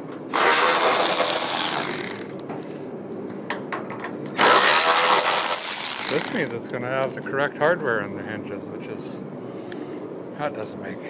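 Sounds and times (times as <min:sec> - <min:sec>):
cordless power driver spinning: 0:00.3 - 0:02.4, 0:04.4 - 0:06.5.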